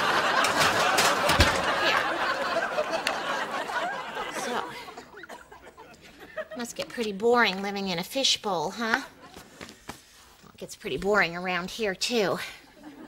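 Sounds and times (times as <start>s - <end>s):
audience laughing: 0.0s - 6.6s.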